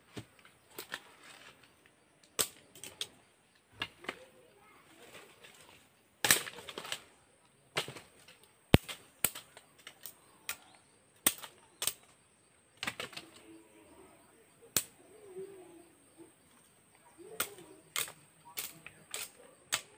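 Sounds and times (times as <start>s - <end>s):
machete chopping bamboo: 6.2s - 7.0s, 8.8s - 10.6s, 11.2s - 12.1s, 17.4s - 19.9s.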